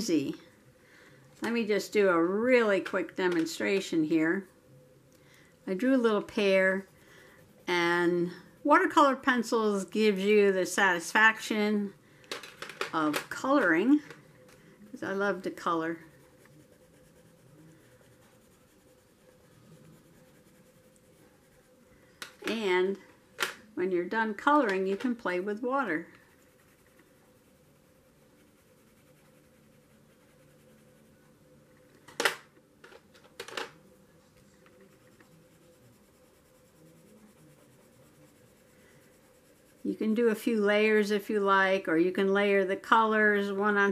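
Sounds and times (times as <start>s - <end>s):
pencil scratching on paper: 5.7s - 9.4s, 15.0s - 21.9s, 24.6s - 31.4s, 34.6s - 40.7s.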